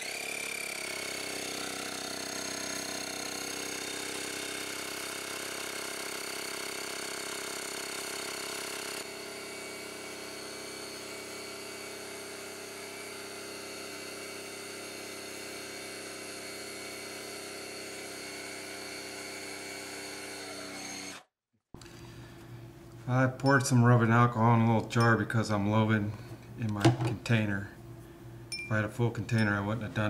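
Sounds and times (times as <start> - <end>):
mechanical hum: 21.8 - 30.0.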